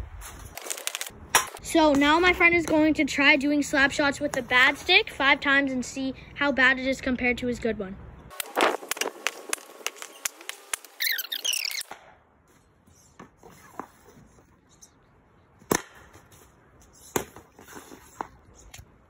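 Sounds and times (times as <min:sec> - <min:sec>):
hockey stick slapping puck: 0:08.3 - 0:11.1, 0:15.7 - 0:16.3, 0:17.0 - 0:18.4
high chirps: 0:09.9 - 0:11.9.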